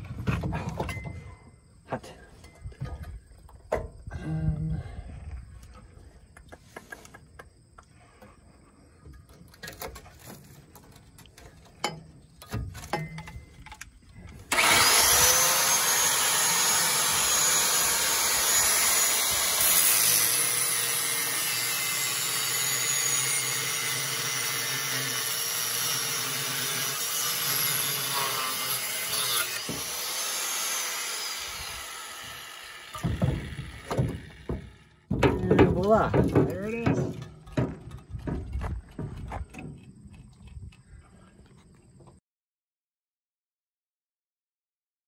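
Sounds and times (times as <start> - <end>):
angle grinder cutting metal: 14.5 - 35.2
light knocks and clatters: 33.0 - 40.5.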